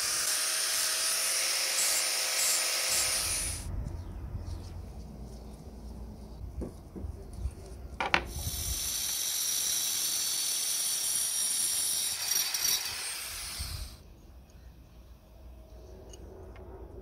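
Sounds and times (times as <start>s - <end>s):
angle grinder cutting steel: 0.0s - 3.7s, 8.4s - 14.0s.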